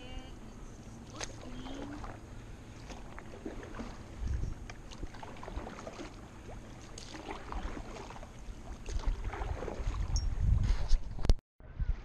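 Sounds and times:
water lapping against canoe hull: 0.6 - 11.3
wind buffeting microphone: 4.0 - 5.7, 8.4 - 12.0.

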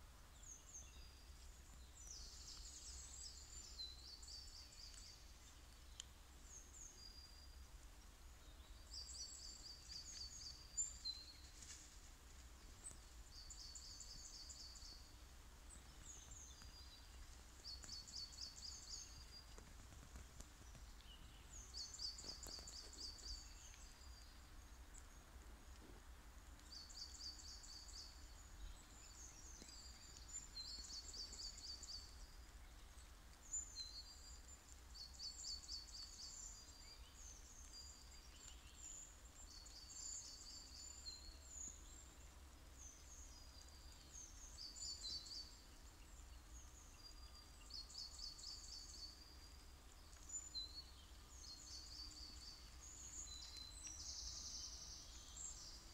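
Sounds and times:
faint low rumble: 0.0 - 55.9
songbirds singing: 0.0 - 55.9
bird chirps: 20.6 - 25.1.

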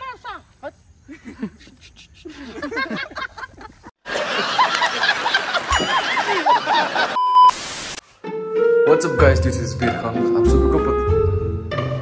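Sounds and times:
giggling and laughter: 1.0 - 7.2.

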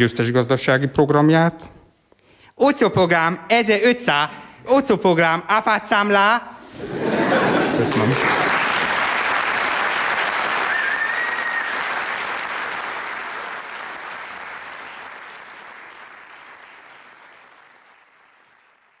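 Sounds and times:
audience applauding: 6.8 - 19.0.

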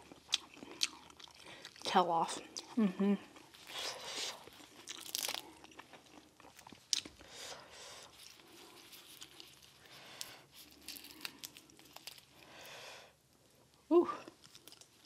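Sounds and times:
crawfish shell cracking: 4.8 - 5.9, 9.0 - 12.3.

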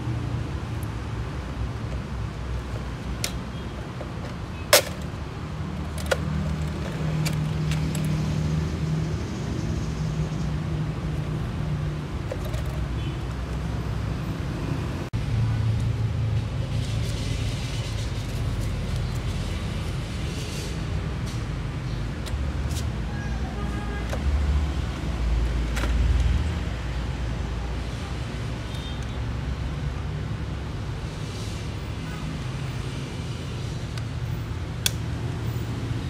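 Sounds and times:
road traffic rumble: 0.0 - 36.0
sharp plastic clicks: 2.8 - 5.2, 34.8 - 35.2.

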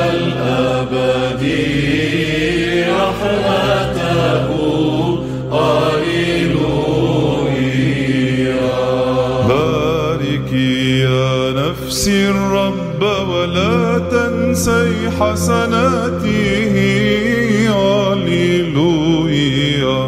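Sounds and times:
held low vocal drone: 0.0 - 20.0
person chanting melismatically: 0.0 - 20.0.

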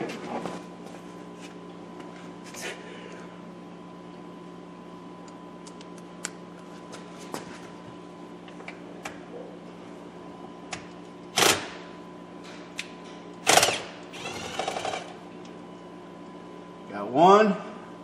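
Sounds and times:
cordless drill whirring: 13.5 - 15.1.

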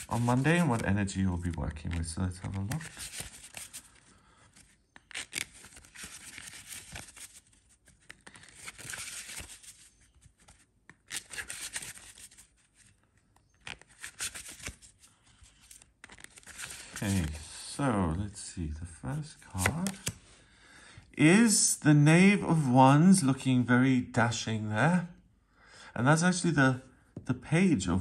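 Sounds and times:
cards being shuffled: 0.0 - 17.6, 19.3 - 20.3.

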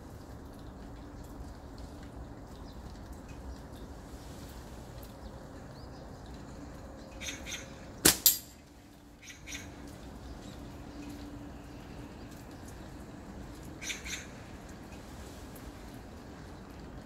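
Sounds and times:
rain hissing: 0.0 - 7.0, 9.8 - 17.0
sharp crack: 8.0 - 8.6.

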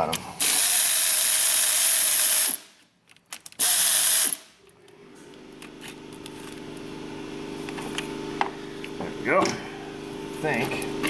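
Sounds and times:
pneumatic air ratchet hissing: 0.4 - 2.8, 3.6 - 4.5.

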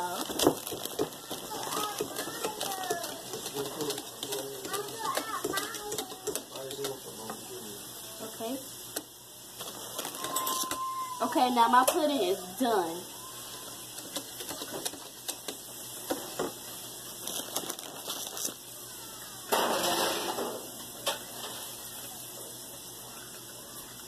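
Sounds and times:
whisk in metal bowl: 0.0 - 7.8, 13.2 - 16.5.

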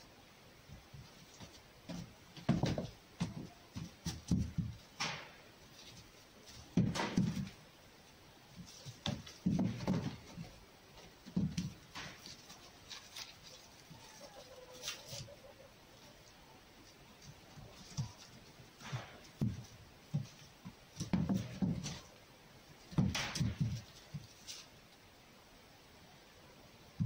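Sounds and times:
fox scrambling and pouncing on straw: 8.5 - 22.2, 22.8 - 24.8.

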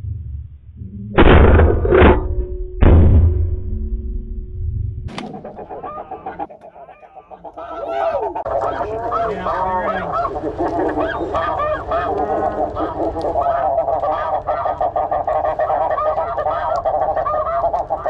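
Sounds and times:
geese honking: 5.2 - 18.0.

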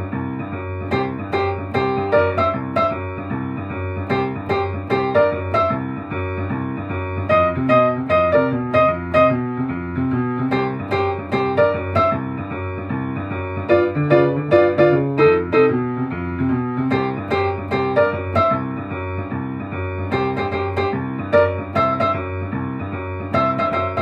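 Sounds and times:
boogie woogie piano: 0.0 - 24.0.

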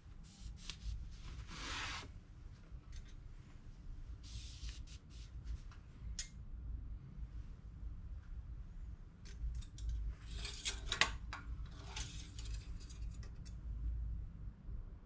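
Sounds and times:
cloth rag rubbing: 0.2 - 2.2.

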